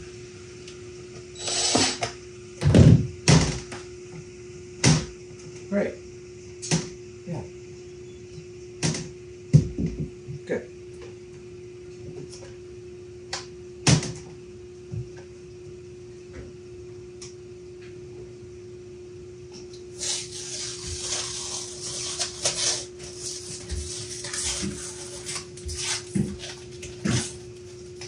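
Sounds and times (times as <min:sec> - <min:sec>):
steady low hum: 0:00.0 - 0:28.0
scraping and rustling: 0:20.0 - 0:28.0.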